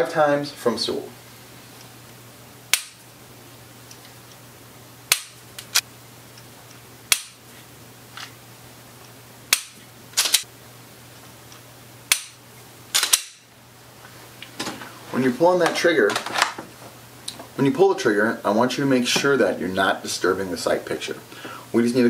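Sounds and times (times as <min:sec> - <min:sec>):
pistol dry-fire clicks: 0:09.5 - 0:10.5, 0:13.0 - 0:13.4.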